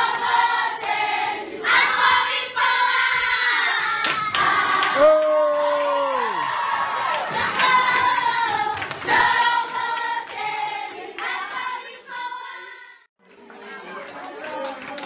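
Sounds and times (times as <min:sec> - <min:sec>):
children singing: 0:00.0 - 0:05.0, 0:07.2 - 0:13.0
women's voices singing: 0:07.0 - 0:13.0.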